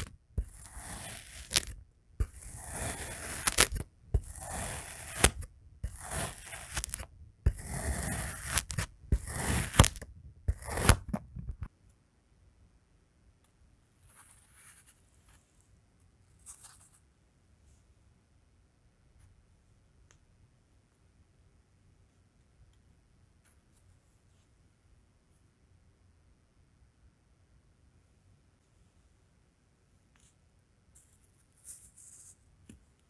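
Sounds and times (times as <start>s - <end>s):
knife cutting through sand: 0.0s - 11.0s.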